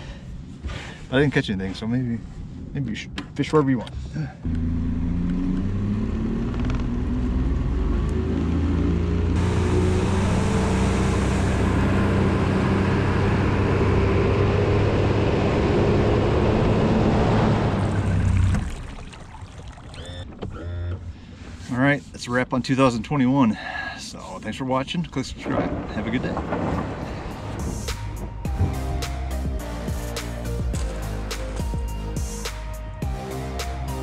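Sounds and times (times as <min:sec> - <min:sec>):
wind and water rushing: 0:17.2 - 0:20.1, 0:25.2 - 0:28.8
outboard motor running: 0:17.8 - 0:21.2.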